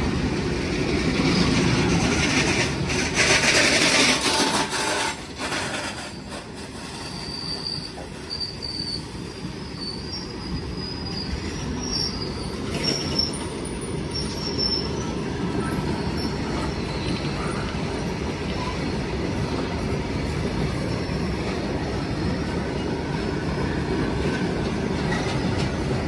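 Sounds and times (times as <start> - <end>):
train wheels rumbling on rails: 0.0 - 26.0
wheel squeals: 3.2 - 17.6.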